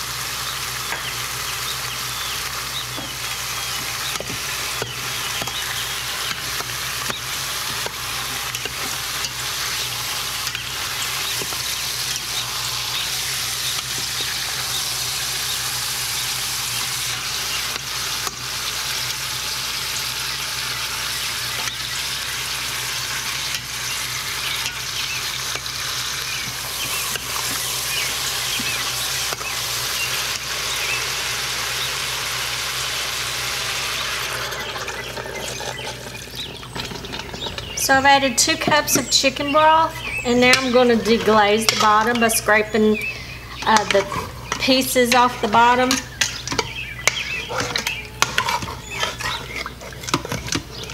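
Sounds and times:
meat sizzling in hot oil: 0.0 - 37.8
metal spoon scraping pot: 39.9 - 42.5, 43.1 - 50.9.

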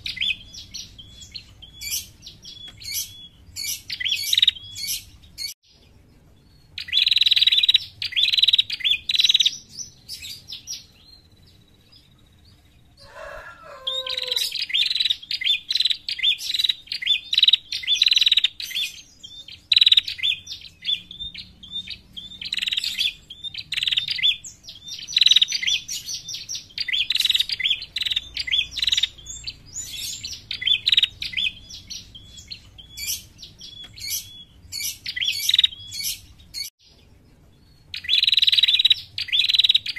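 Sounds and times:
bird chattering call: 21.8 - 36.7.

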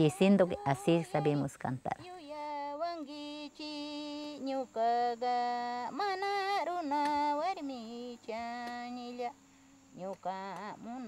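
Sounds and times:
woman singing unaccompanied: 0.0 - 11.0
woman breathing: 9.4 - 9.9.

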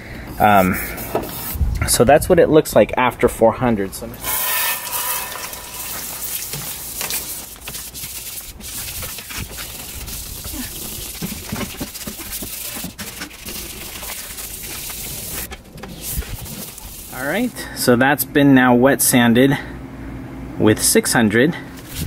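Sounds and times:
hose spraying water: 4.2 - 17.6
sandpaper scrubbing on metal: 4.2 - 17.7.

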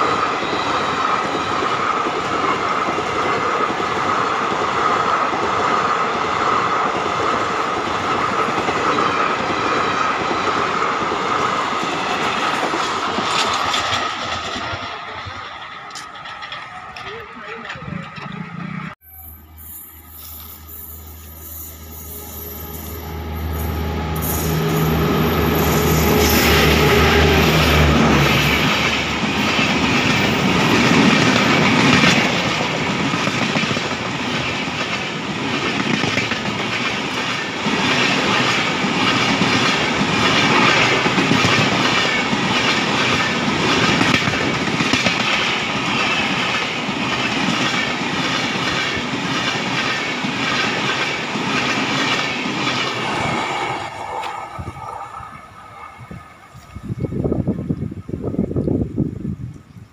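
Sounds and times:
train wheels clattering over joints: 8.1 - 18.9.

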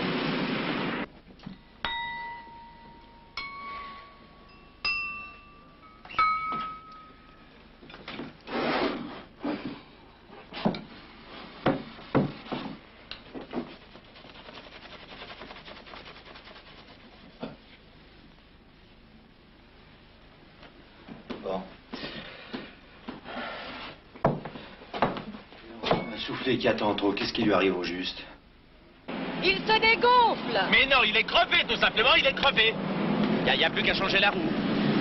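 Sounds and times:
wine glasses ringing: 1.5 - 7.6, 25.9 - 26.4
knocks and clinks on table: 6.0 - 7.2.

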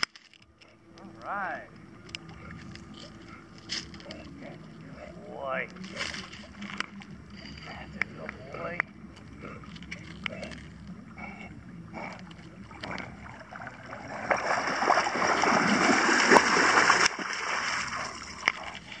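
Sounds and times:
dog splashing through water: 12.8 - 19.0.

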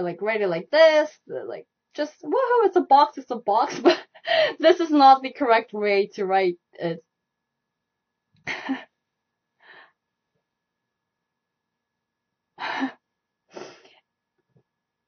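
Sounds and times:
woman laughing softly: 8.5 - 8.9.

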